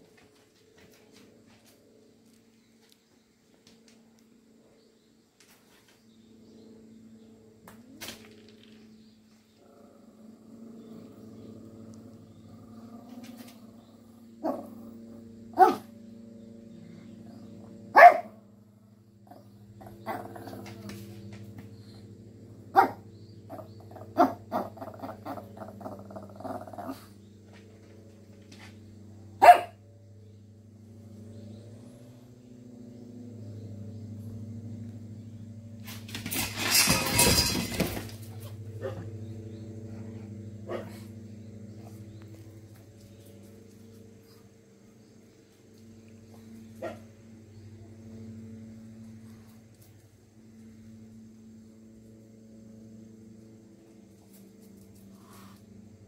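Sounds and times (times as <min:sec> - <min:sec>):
small dog barking: 0:15.5 - 0:15.9, 0:17.9 - 0:18.4, 0:22.7 - 0:26.0, 0:29.4 - 0:29.8, 0:38.8 - 0:39.1, 0:40.7 - 0:41.1, 0:46.8 - 0:47.1.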